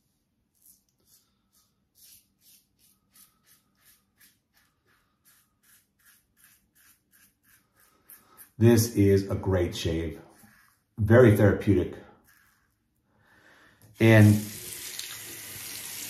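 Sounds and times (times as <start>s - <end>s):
razor scraping stubble: 0.6s - 13.0s.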